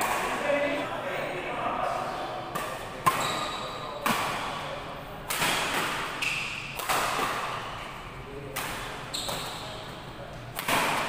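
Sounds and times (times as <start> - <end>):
racket hitting shuttlecock: 2.5 - 4.6, 5.2 - 7.8, 8.5 - 9.9, 10.5 - 11.0.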